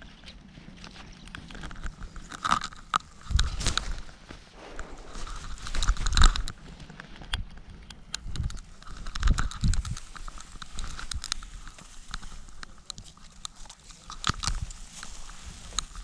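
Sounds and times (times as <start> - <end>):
sharp clicks and crackling scrapes: 0.0 - 16.0
low wind rumble: 1.6 - 12.8.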